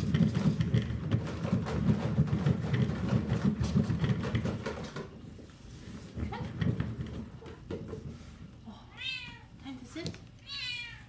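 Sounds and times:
rapid irregular knocking: 0:00.0 - 0:05.2
exercise wheel rumbling: 0:00.0 - 0:08.7.

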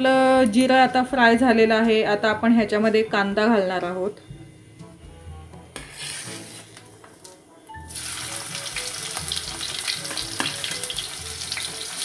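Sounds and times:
onion sizzling in hot oil: 0:05.8 - 0:12.0.

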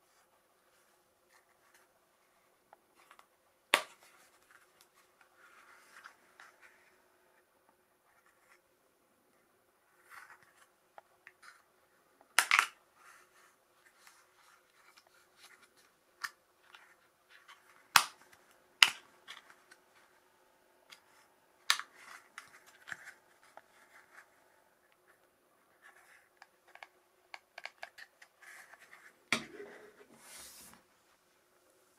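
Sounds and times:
plastic lids snapping open and shut: 0:12.3 - 0:12.8.

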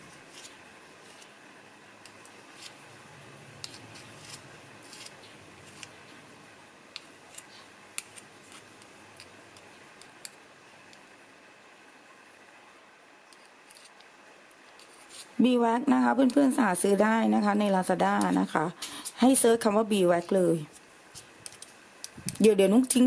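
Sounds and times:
steady low hiss: 0:00.0 - 0:23.0
spoon scraping metal tin: 0:03.6 - 0:05.9.

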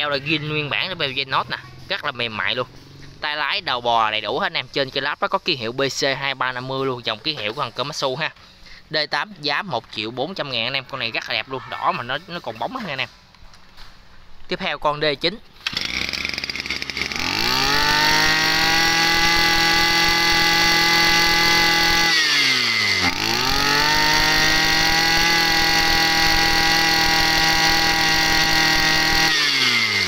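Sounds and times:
brush cutter engine revving: 0:15.6 - 0:30.0.

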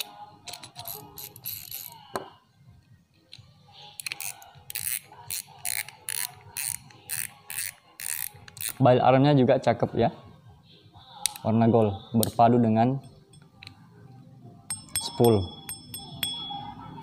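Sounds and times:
fishing reel clicking: 0:04.0 - 0:08.8.

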